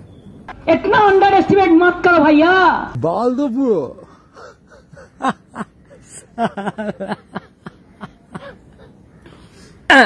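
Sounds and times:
man chuckling: 0:04.3 - 0:09.0.

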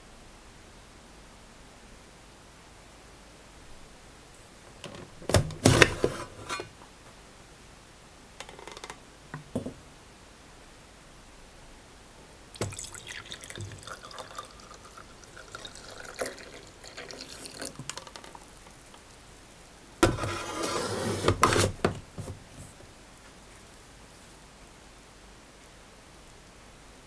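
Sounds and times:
coffee pouring into a mug: 0:12.6 - 0:19.0.

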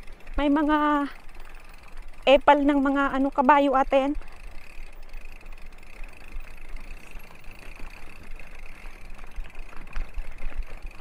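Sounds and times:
bike tyres crunching on gravel: 0:04.1 - 0:11.0.

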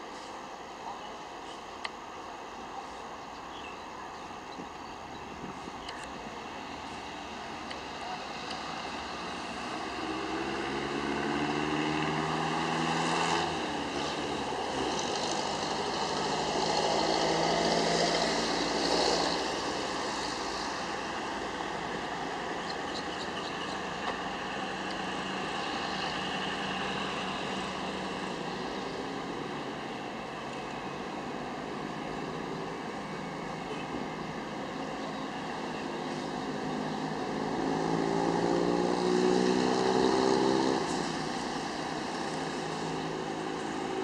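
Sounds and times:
train rumble and hiss: 0:00.0 - 0:10.3, 0:13.5 - 0:37.6
locomotive engine drone: 0:00.0 - 0:44.0.

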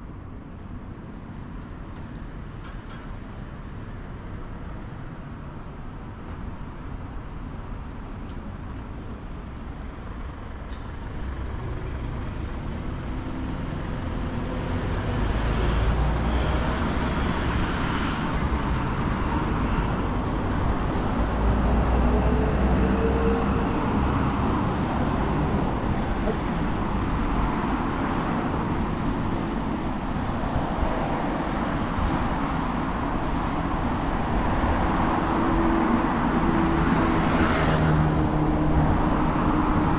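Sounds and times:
buses or trucks passing: 0:00.0 - 0:39.9
cars passing: 0:10.8 - 0:39.9.

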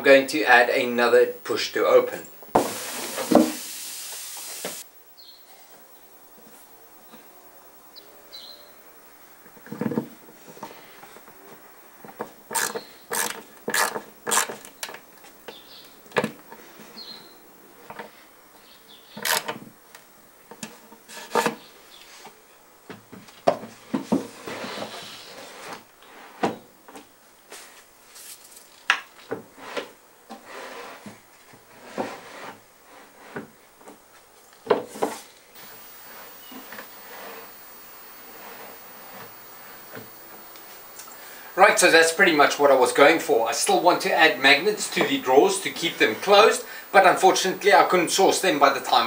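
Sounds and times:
wooden box sliding in cabinet: 0:02.6 - 0:03.7, 0:23.7 - 0:26.6, 0:29.5 - 0:33.6.

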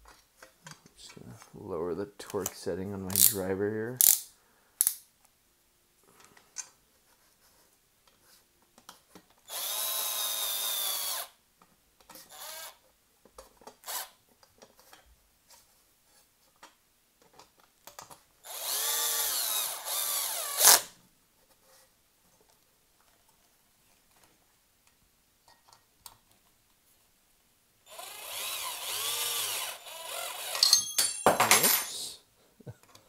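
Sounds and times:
power driver driving screws: 0:04.0 - 0:04.2, 0:09.5 - 0:11.3, 0:18.5 - 0:20.9, 0:27.9 - 0:31.0.

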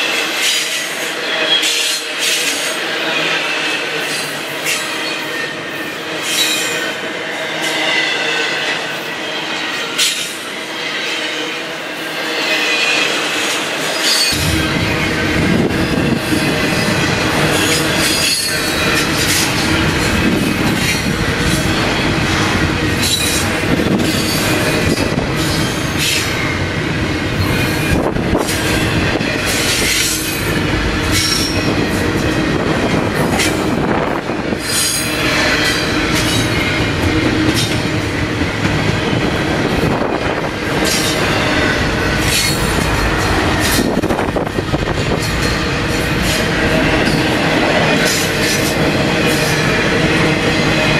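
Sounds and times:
freight train wheels rumbling on rail: 0:00.0 - 0:50.9.

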